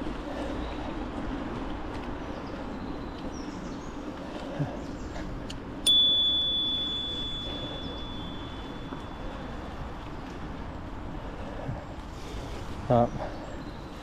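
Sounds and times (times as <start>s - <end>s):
riding rumble: 0.0s - 14.0s
bright metallic ding: 5.9s - 9.3s.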